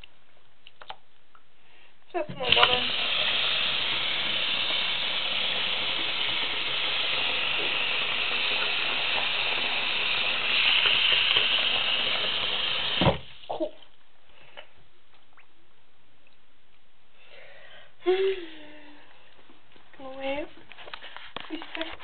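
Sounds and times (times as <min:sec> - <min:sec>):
faucet running into sink: 0:02.3 - 0:13.4.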